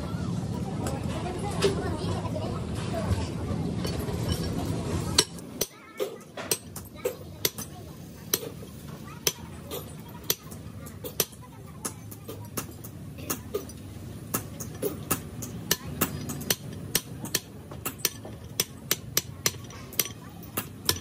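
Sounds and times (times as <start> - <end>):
hammer striking metal: 5.1 - 21.0.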